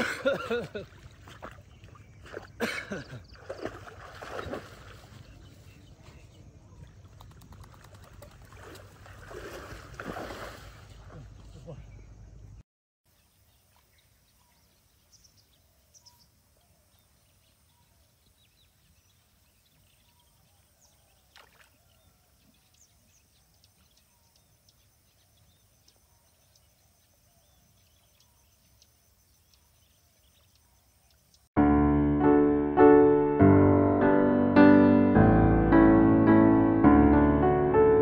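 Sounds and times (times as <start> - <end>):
faint bird chirps: 10.9 - 31.5.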